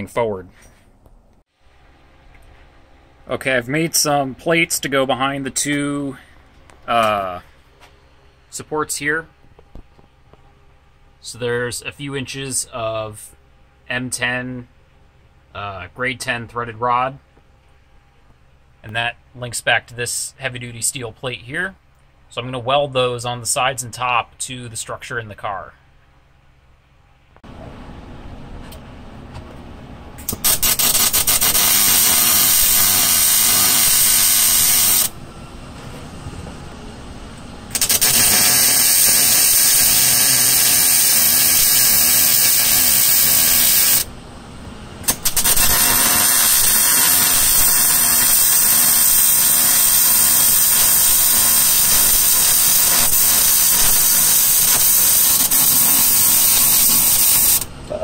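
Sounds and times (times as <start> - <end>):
low background hum: 0.0 - 58.0
welder crackling hiss: 30.3 - 35.1, 37.7 - 44.1, 45.1 - 57.7.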